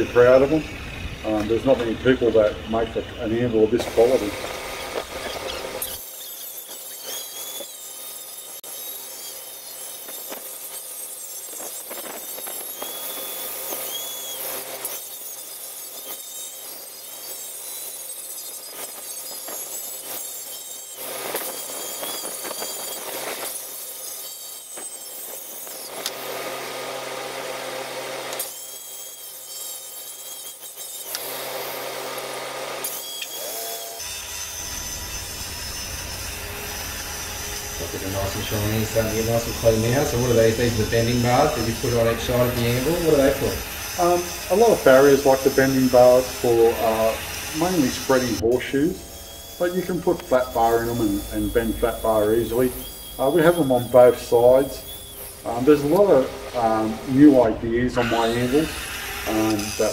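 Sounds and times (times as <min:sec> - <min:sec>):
angle grinder grinding steel: 0:00.0 - 0:59.9.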